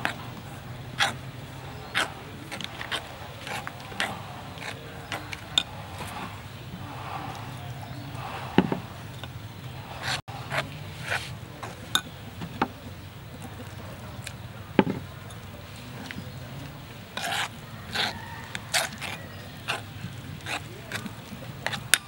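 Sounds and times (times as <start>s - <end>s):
short knocks: 8.2s - 9.0s
sharp thuds: 8.2s - 10.2s
metal spoon scraping in bowl: 17.2s - 22.0s.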